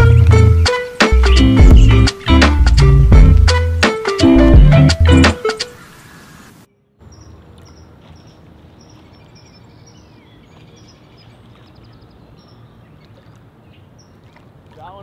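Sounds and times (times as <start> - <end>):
high bird chirps: 0.0 - 2.8, 6.7 - 14.3.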